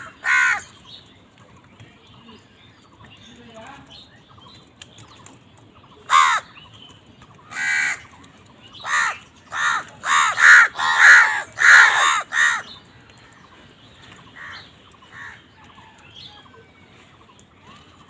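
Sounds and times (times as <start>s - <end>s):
crows cawing: 0.0s - 0.8s, 6.0s - 6.6s, 7.4s - 16.0s.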